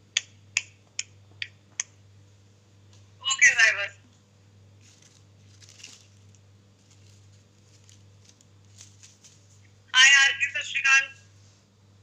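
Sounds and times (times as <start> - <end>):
steady low hum: 0.0 - 12.0
faint rustles and clicks: 4.1 - 9.8.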